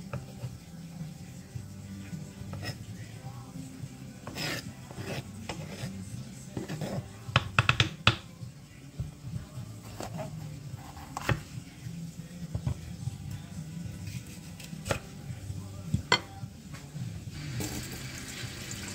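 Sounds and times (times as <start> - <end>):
knife tapping on wooden board: 7.3 - 8.3.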